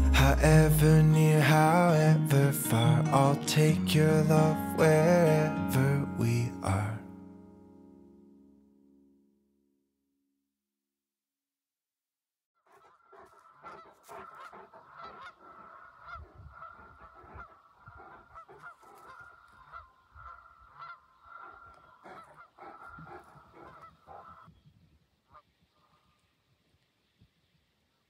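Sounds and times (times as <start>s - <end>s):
geese honking: 12.8s - 24.5s.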